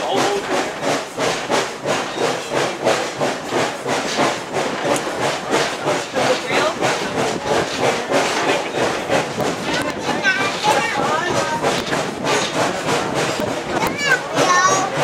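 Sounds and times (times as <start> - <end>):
steam locomotive chuffing: 0.0 - 15.0.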